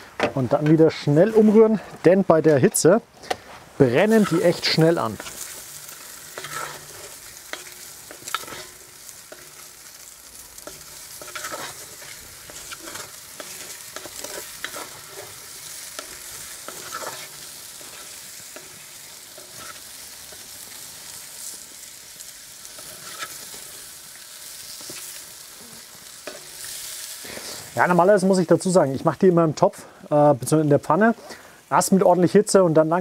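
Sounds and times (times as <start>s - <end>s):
noodles sizzling in oil: 3.7s - 33.0s
utensil scraping a pot: 6.4s - 8.7s.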